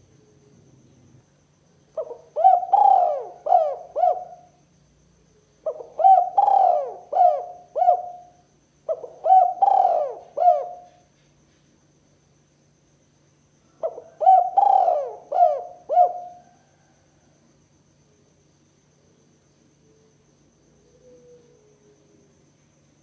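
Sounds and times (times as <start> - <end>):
dove cooing: 2.0 - 4.5, 5.6 - 11.0, 13.8 - 16.9.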